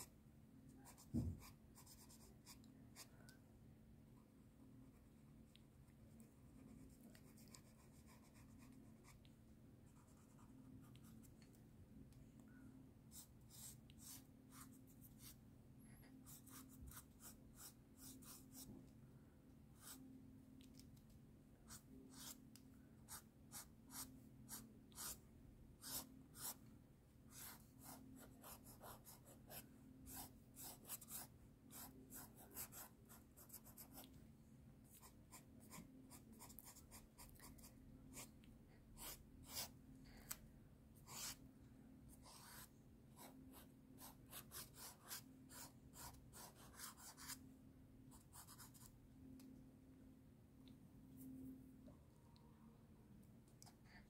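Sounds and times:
low steady hum: 0.0s - 54.0s
pen scratching on paper: 23.1s - 25.2s, 25.8s - 26.6s, 27.3s - 34.1s, 41.0s - 41.4s, 42.2s - 47.4s.

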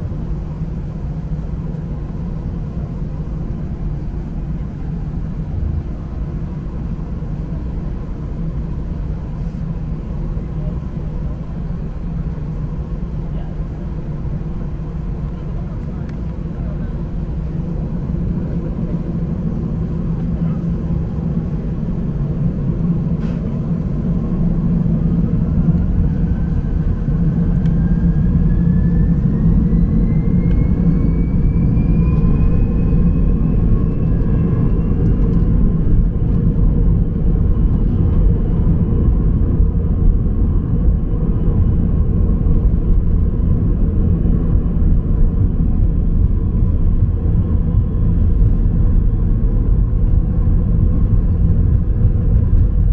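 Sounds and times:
deep engine rumble: 0.0s - 52.9s
jet engine whine: 0.0s - 52.9s.

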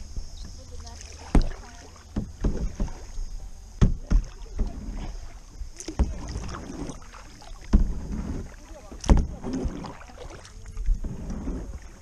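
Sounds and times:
paddle splashing in water: 0.0s - 12.0s
sharp knocks: 3.8s - 4.7s.

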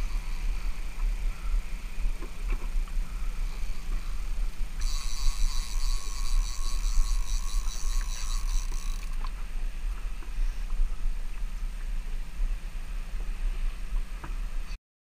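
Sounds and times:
fishing reel ratchet clicking: 3.4s - 9.3s.

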